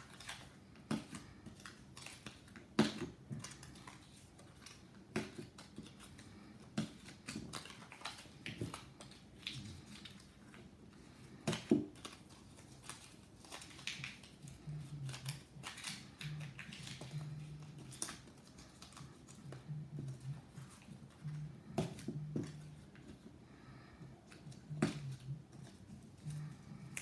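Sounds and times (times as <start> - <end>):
paper rustling and crinkling: 0.0 - 23.3.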